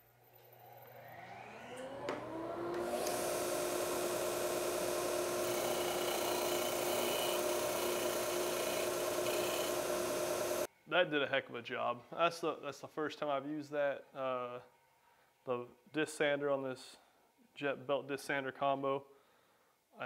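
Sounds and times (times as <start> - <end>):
sander motor whine: 0.5 - 10.7
disc sanding wood hiss: 2.7 - 10.7.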